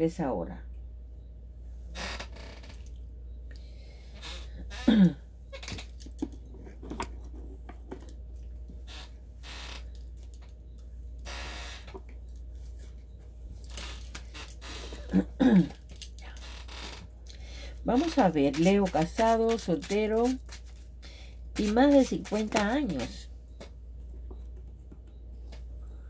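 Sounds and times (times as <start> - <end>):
loud falling creak: 1.9 - 2.9, 4.2 - 6.0, 8.8 - 10.0, 11.2 - 12.0, 13.7 - 15.2, 16.4 - 17.1.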